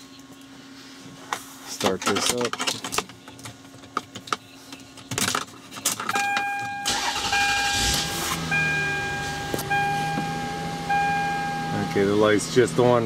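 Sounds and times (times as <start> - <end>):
car engine cranking and idling: 6.3 - 13.0.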